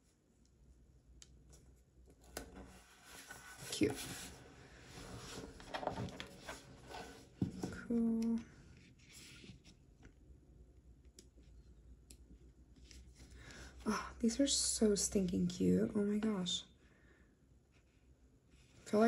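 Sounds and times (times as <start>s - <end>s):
paper rustling: 2.3s - 7.2s
pages flipping: 5.1s - 7.2s.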